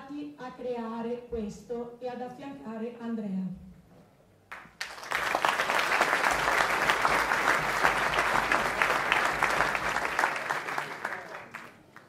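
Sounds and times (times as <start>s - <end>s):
crowd applause: 4.8s - 12.0s.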